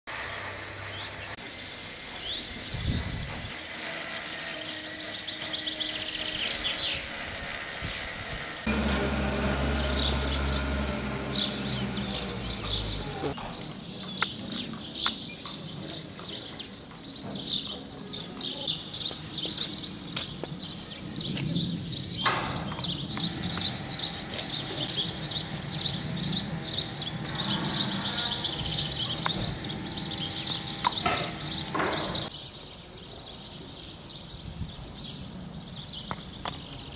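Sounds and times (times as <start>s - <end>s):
songbirds chirping and singing: 0.8s - 8.7s, 9.5s - 36.9s.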